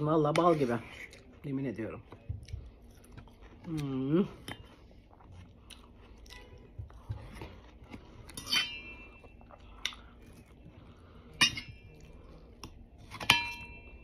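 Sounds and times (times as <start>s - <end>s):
cutlery clinking against metal bowl: 8.3s - 9.2s, 11.4s - 12.0s, 13.1s - 14.0s.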